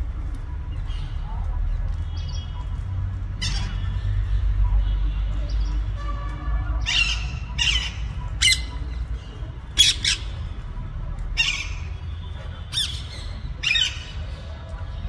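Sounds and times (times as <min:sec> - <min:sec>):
parakeets squawking: 0:06.8 - 0:10.5.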